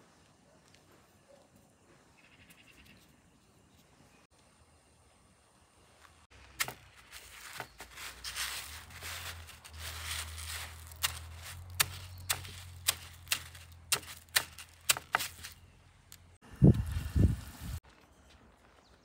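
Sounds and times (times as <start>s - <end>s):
cornflakes crunching and rustling: 6.4s - 15.6s.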